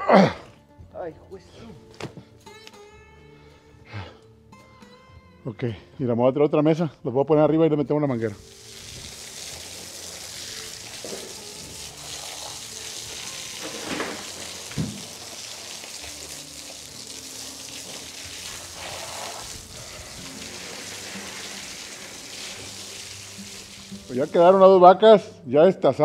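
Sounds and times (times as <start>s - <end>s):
hose spray spattering on meat: 8.4s - 24.5s
knock: 14.8s - 15.0s.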